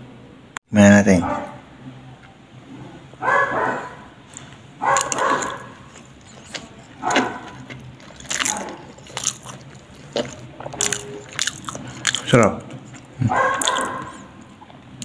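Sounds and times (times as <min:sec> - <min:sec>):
wet chewing: 0:04.3 - 0:15.0.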